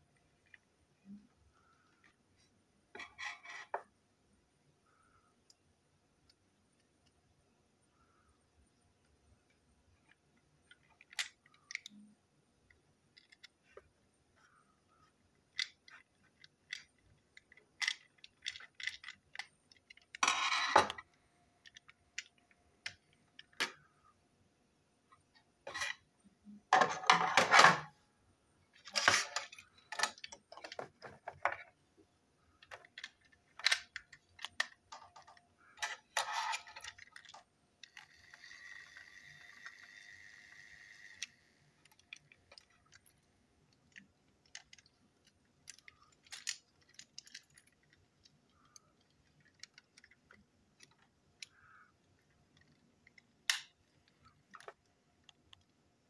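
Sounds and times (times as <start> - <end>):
plastic toy train clicks and rattles: 10.0 - 12.1, 12.7 - 13.8, 15.5 - 23.9, 28.8 - 31.7, 32.6 - 55.7.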